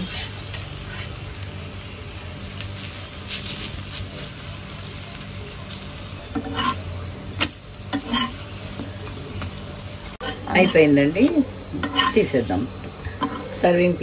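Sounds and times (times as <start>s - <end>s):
metal spatula scraping pan: 0.0s - 1.2s, 6.3s - 6.8s, 7.9s - 8.5s, 10.2s - 11.0s, 11.8s - 13.7s
food sizzling in oil: 0.0s - 14.0s.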